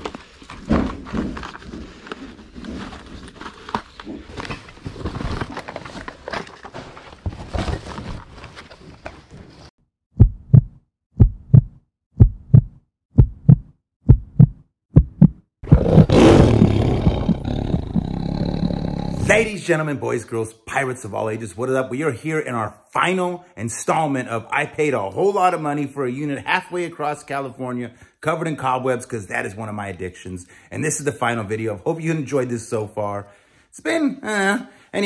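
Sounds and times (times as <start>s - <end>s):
heartbeat thumps: 10.2s - 16.1s.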